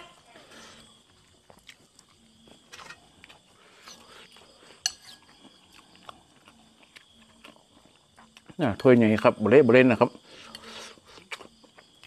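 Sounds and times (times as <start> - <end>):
soft chewing: 0.4 - 9.4, 10.1 - 12.0
metal spoon clinking ceramic bowl: 4.8 - 5.2.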